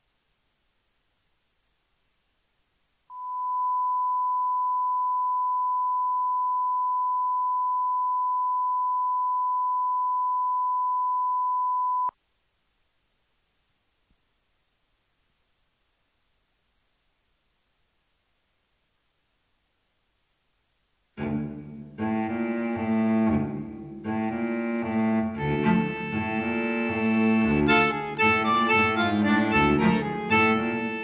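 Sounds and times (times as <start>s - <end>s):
sine test tone: 3.1s - 12.2s.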